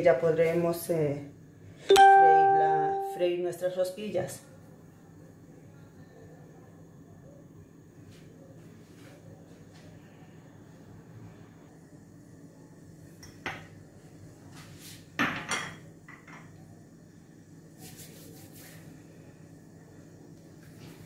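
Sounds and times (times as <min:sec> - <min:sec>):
kitchenware knocking and clattering: 0:15.2 - 0:16.6.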